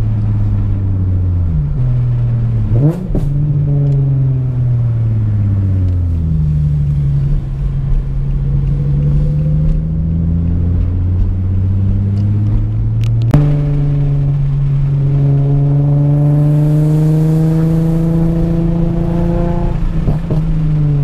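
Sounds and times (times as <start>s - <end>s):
car engine with loud exhaust: 0.0s - 21.0s.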